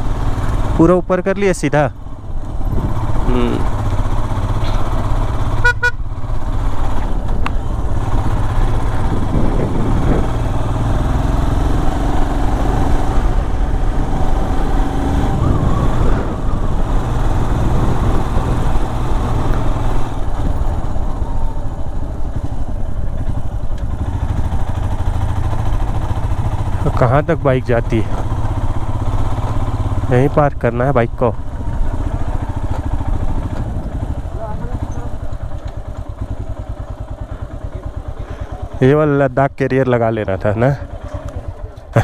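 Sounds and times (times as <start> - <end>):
motorcycle engine running: 0.0 - 42.0
short horn beep: 5.6 - 6.0.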